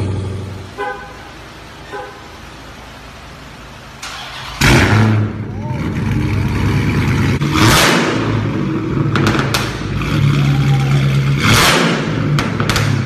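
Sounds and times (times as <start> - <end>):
exhaust cracks: 4.0 - 13.0
car engine revving loudly: 4.5 - 13.0.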